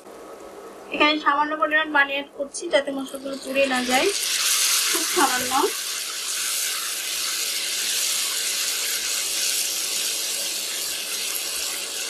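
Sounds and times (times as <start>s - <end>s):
masala sizzling in frying pan: 2.6s - 12.0s
water hissing in hot oil: 2.8s - 12.0s.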